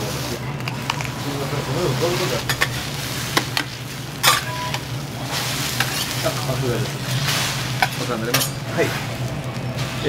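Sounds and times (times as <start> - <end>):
food sizzling on griddle: 0.0 - 10.0
metal spatulas clacking: 4.2 - 4.6, 7.8 - 8.6.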